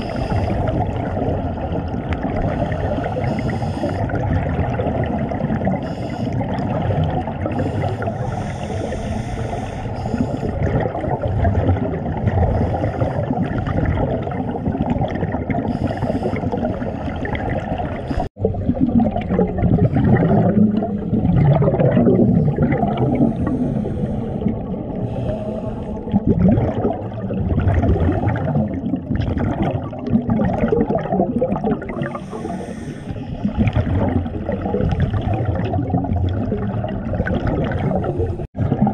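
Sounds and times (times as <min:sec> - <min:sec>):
diver breathing through regulator: 0:00.0 - 0:00.8, 0:02.4 - 0:04.2, 0:05.8 - 0:06.5, 0:07.4 - 0:11.7, 0:12.4 - 0:13.6, 0:15.6 - 0:17.4, 0:22.2 - 0:26.2, 0:32.0 - 0:33.5
bubbling underwater: 0:00.0 - 0:09.2, 0:10.0 - 0:38.9.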